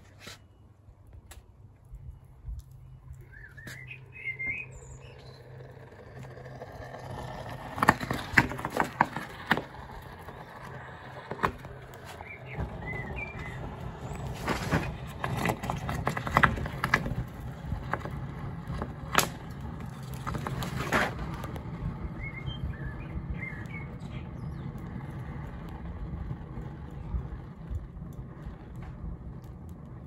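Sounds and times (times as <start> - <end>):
sharp pops and crackles: 1.0 - 5.4, 10.7 - 30.0
faint bird chirps: 1.9 - 5.6, 22.2 - 24.6
low rumble: 21.2 - 30.0.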